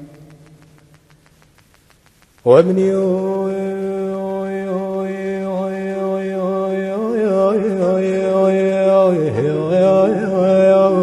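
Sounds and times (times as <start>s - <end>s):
man singing a long note: 2.5s - 11.0s.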